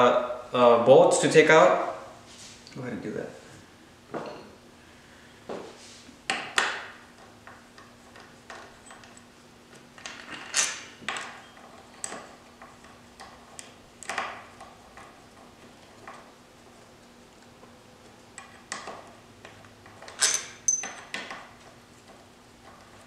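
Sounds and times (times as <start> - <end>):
metallic bolt clinks and taps: 19.5 - 21.4.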